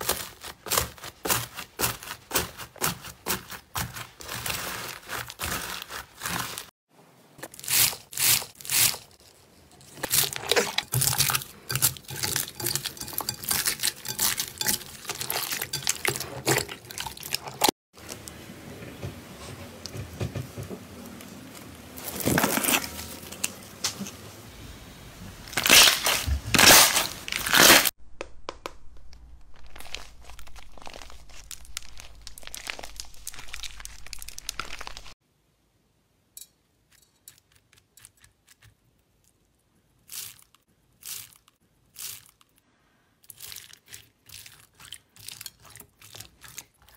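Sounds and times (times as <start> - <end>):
slime crackling and popping: 25.5 - 35.2.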